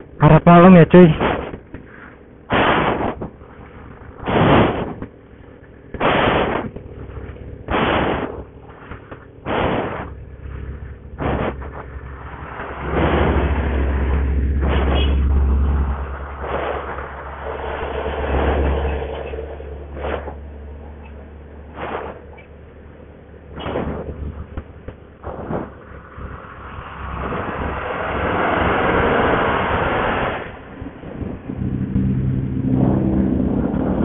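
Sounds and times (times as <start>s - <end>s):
low rumble: 0.0s - 34.0s
breath blasts on microphone: 2.5s - 3.3s, 4.2s - 5.0s, 6.0s - 6.7s, 7.7s - 8.4s, 9.5s - 10.2s.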